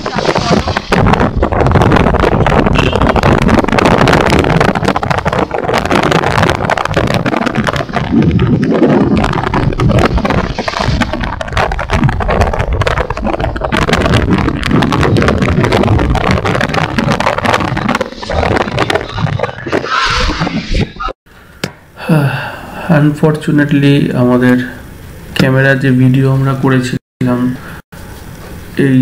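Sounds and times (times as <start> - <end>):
wind buffeting microphone: 0.0 - 21.2
motorcycle engine: 1.1 - 19.7.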